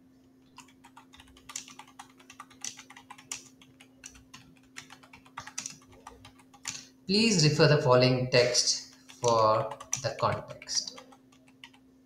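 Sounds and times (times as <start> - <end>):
computer keyboard typing: 0.5 - 6.9, 8.8 - 11.8.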